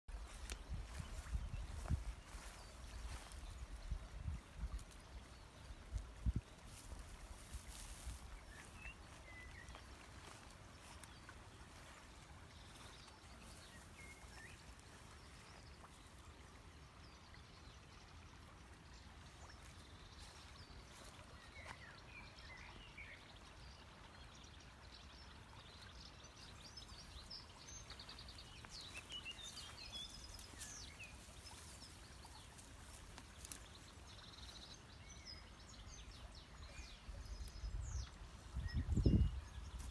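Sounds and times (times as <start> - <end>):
wind rumble on microphone: 0.1 - 11.0, 35.8 - 39.9.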